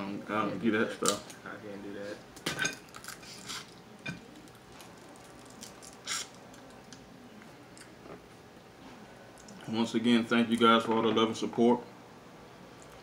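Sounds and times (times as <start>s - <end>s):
crab shell crackling: 2.8s - 7.0s.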